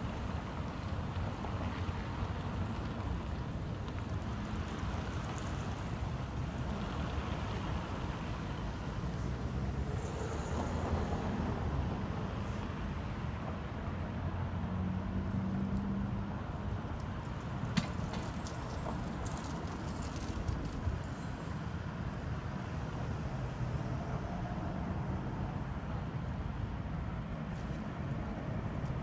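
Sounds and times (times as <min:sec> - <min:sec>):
cars driving slowly: 0:00.0 - 0:29.0.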